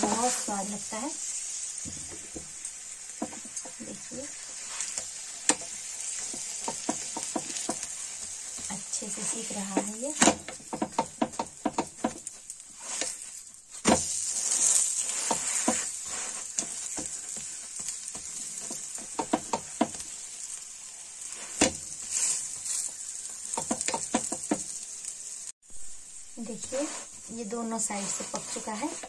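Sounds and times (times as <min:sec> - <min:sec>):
flatbread sizzling in hot fat: 0:00.0 - 0:29.0
spatula clicking and scraping pan: 0:02.6 - 0:20.6, 0:21.2 - 0:24.8, 0:27.8 - 0:29.0.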